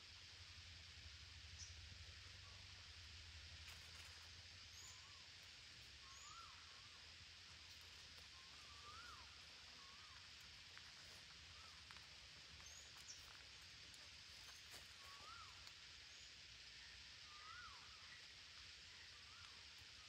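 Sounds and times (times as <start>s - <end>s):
steady high hiss: 0.0s - 20.0s
distant bird whistles: 6.0s - 6.6s.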